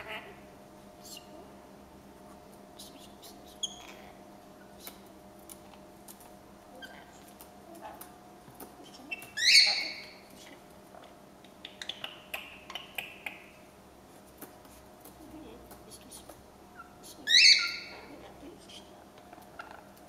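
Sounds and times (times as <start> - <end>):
birds chattering calls: 8.8 - 10.5, 16.6 - 20.0.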